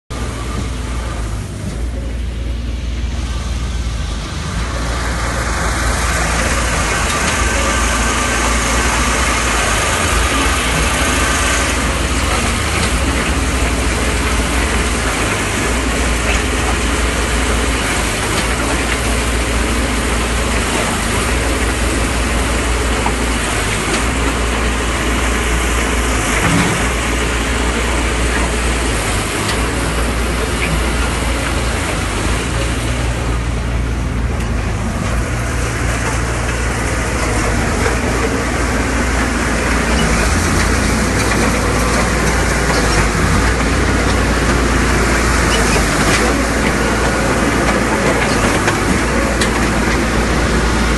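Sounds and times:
concrete pump mechanical drone: 0:00.1 - 0:50.9.

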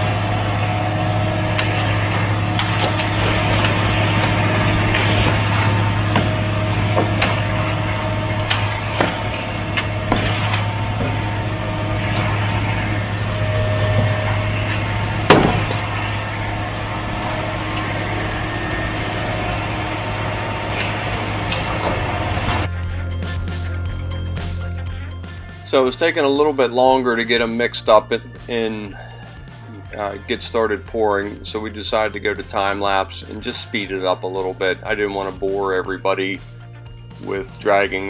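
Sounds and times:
concrete truck engine running: 0:00.0 - 0:22.8.

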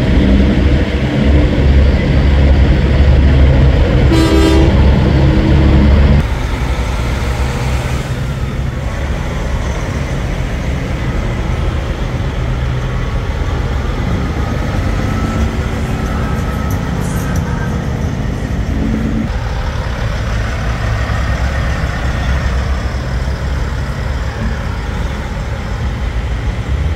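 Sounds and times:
truck diesel engines: 0:00.0 - 0:26.9
truck horn blast: 0:04.0 - 0:05.6.

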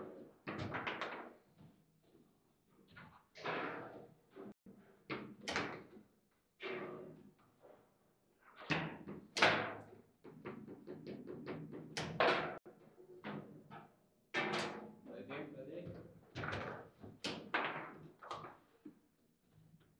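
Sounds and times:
table football knocks and bangs: 0:08.7 - 0:12.6, 0:16.3 - 0:18.1.

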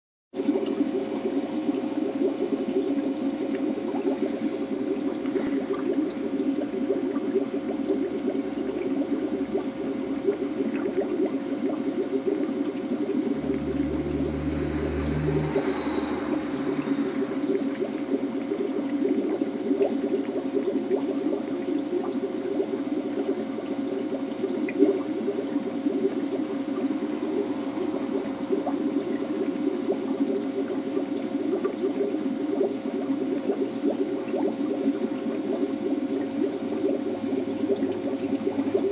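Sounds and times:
aquarium water bubbling: 0:00.3 - 0:38.9
faint steady hum: 0:00.4 - 0:38.9
low rumble: 0:12.4 - 0:18.9, 0:25.0 - 0:31.4.

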